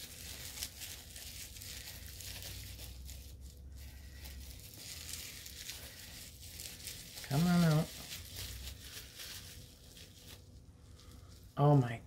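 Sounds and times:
wrapping crinkling and tearing: 0.0s - 12.0s.

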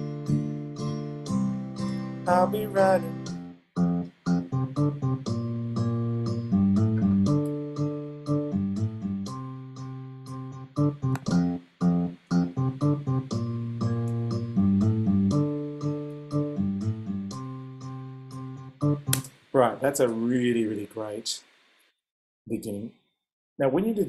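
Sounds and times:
steel-string guitar strumming chords: 3.9s - 19.2s.

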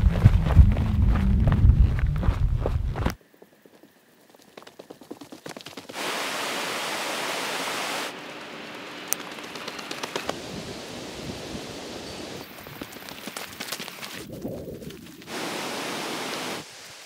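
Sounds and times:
footsteps on dirt track: 0.0s - 6.0s
steady hiss: 5.9s - 8.2s, 9.6s - 12.9s, 15.1s - 17.0s
mountain stream rushing: 15.3s - 17.0s.

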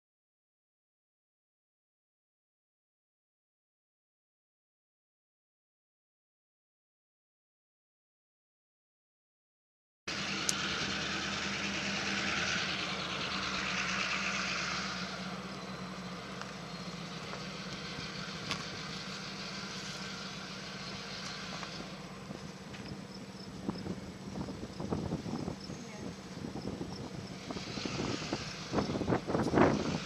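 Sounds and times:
engine idling: 10.1s - 30.0s.

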